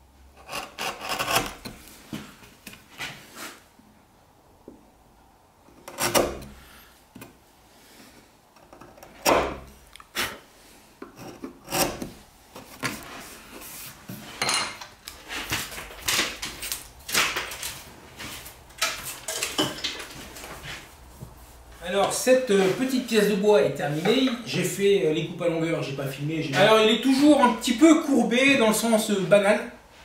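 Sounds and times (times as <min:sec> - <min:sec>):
chisel scraping hardwood: 0:00.4 - 0:01.9, 0:05.8 - 0:06.6, 0:08.6 - 0:09.7, 0:11.0 - 0:13.7.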